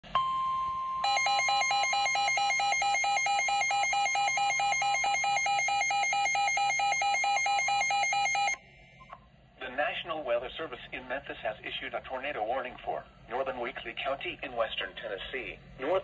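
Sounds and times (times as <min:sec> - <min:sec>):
weather radio alarm tone: 0:00.2 - 0:08.6
rapid electronic beeping: 0:01.0 - 0:08.6.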